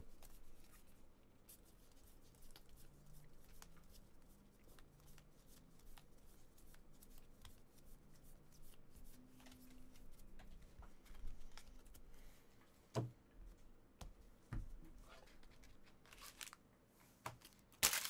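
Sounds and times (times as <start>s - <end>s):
cards flipped by hand: 11.0s - 12.1s, 15.4s - 16.6s.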